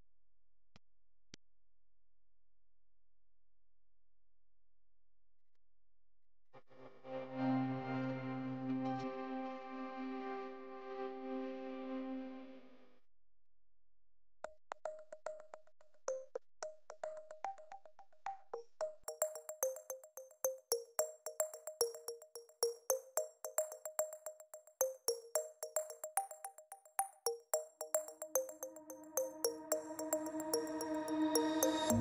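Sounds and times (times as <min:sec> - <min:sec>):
held music chord: 0:07.2 - 0:12.6, 0:28.3 - 0:32.0
fast ticking beat: 0:16.6 - 0:32.0.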